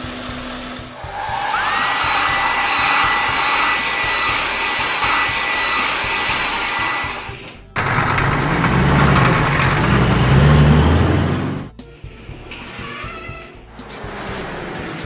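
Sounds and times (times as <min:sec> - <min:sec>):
blower-like hiss: 0:00.9 - 0:08.2
motor whine: 0:00.9 - 0:10.1.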